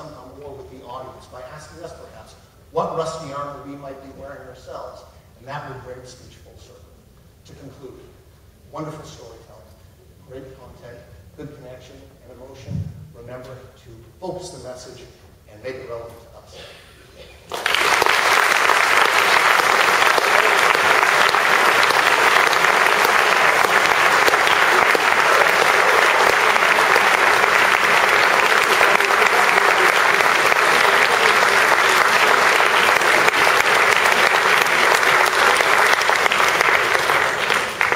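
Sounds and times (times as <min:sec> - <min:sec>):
audience applauding: 0:17.5 - 0:37.9.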